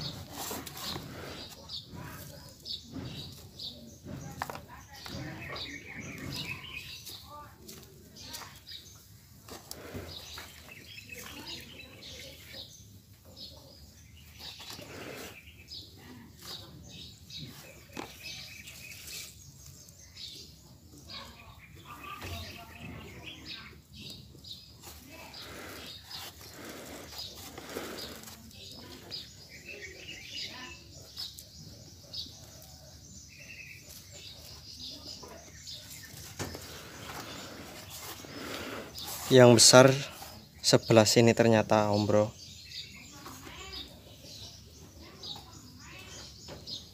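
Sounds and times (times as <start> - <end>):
fingers scraping through soil: 0.0 - 13.2, 14.2 - 20.3, 24.0 - 40.5
birds chirping: 0.0 - 46.9
bird chirps: 4.9 - 7.3.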